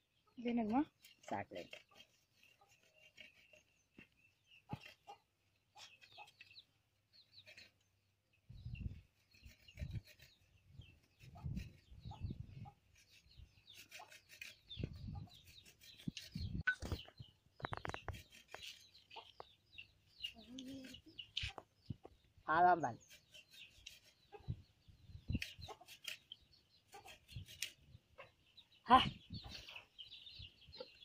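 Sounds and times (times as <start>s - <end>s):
chickens clucking: 4.5s - 6.7s, 11.1s - 22.2s, 23.3s - 24.7s, 25.3s - 27.4s, 28.0s - 31.0s
food scraping on box grater: 13.0s - 16.6s, 17.7s - 19.0s.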